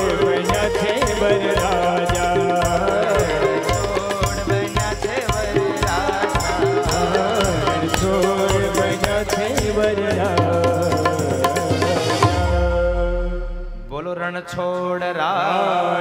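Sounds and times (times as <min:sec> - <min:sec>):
hand drums beating: 0:00.0 - 0:12.4.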